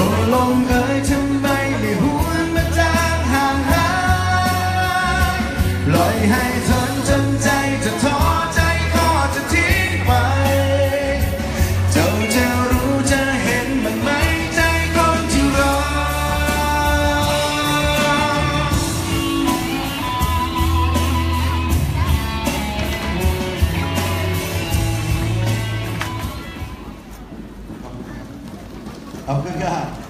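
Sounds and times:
man singing through pa: 0:00.0 - 0:21.1
rock band playing: 0:00.0 - 0:27.7.

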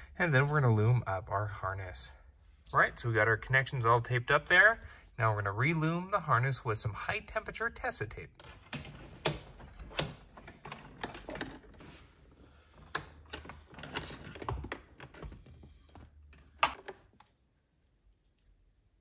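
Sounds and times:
cables clicking and rustling: 0:12.7 - 0:17.5.

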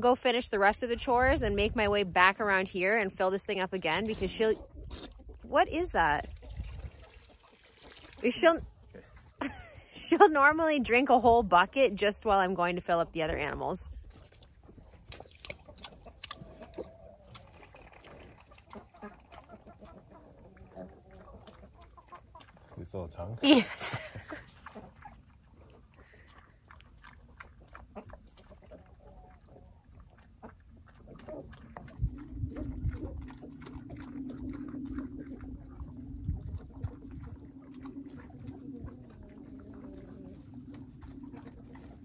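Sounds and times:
animal slurping water: 0:00.0 - 0:42.0
steady low drone: 0:31.8 - 0:42.0.

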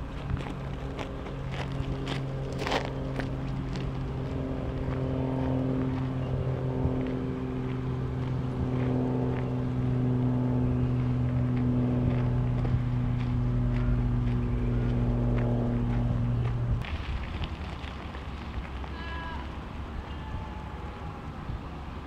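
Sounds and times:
motor humming: 0:05.8 - 0:16.8.

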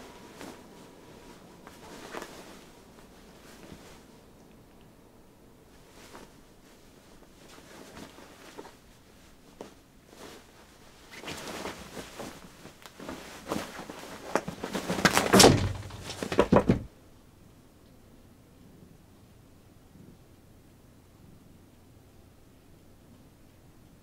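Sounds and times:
bedding rustling: 0:00.0 - 0:04.8, 0:05.6 - 0:16.9
cats scuffling: 0:00.0 - 0:04.8, 0:05.7 - 0:16.9
heavy thumps: 0:14.4 - 0:16.9.

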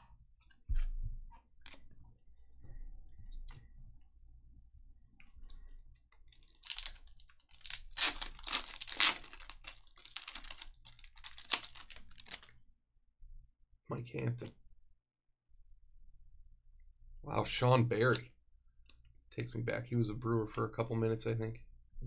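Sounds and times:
wrapper tearing and crinkling: 0:06.3 - 0:12.5.

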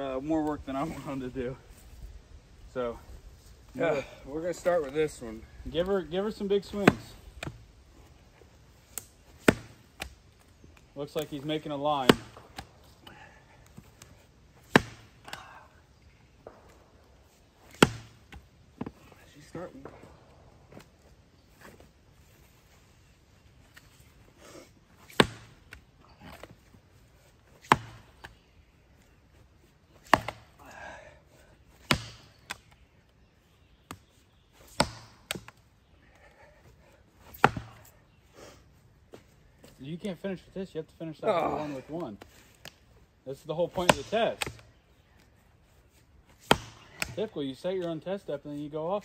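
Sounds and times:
splitting axe striking wood: 0:06.7 - 0:07.6, 0:09.0 - 0:10.1, 0:12.0 - 0:12.7, 0:14.6 - 0:15.1, 0:17.7 - 0:18.2, 0:25.1 - 0:25.6, 0:27.6 - 0:28.1, 0:30.0 - 0:30.5, 0:31.8 - 0:32.6, 0:34.7 - 0:35.5, 0:37.3 - 0:37.8, 0:43.8 - 0:44.6, 0:46.4 - 0:47.2.

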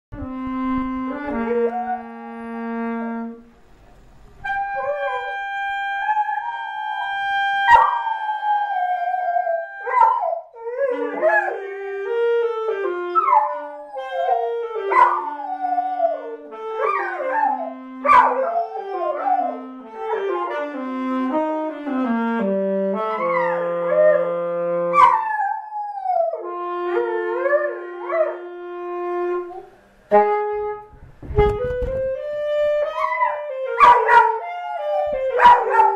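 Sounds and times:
slow saxophone tune: 0:00.2 - 0:35.9
dog howling: 0:04.7 - 0:12.1, 0:12.8 - 0:20.4, 0:23.2 - 0:24.3, 0:24.9 - 0:28.4, 0:32.9 - 0:35.9
dog yipping: 0:07.7 - 0:08.0, 0:16.8 - 0:18.5, 0:25.0 - 0:25.2, 0:33.0 - 0:34.4, 0:35.1 - 0:35.9.

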